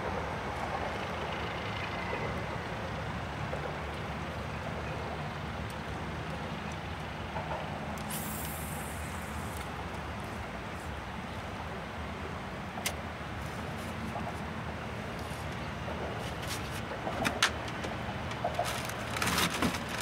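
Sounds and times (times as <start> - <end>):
brief high hiss: 8.1 - 9.7.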